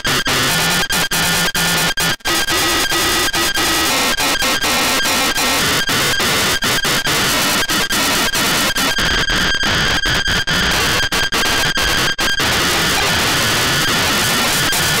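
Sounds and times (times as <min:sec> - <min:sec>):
harsh tv static: 0:00.0 - 0:15.0.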